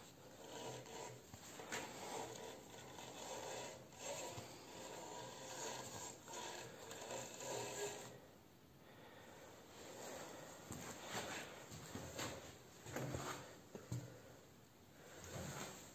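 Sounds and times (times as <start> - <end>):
sandpaper rasping on spinning wood: 0.2 - 8.2.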